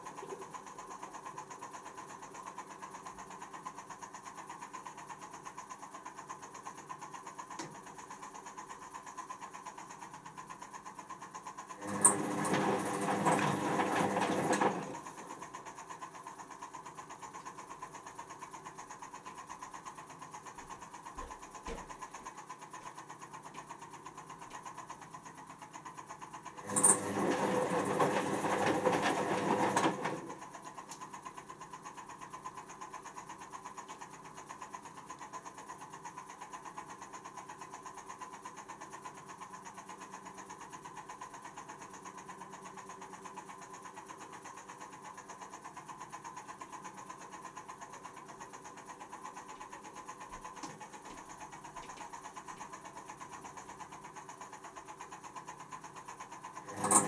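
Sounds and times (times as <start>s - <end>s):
washing machine drum turning: 56.7s - 57.0s.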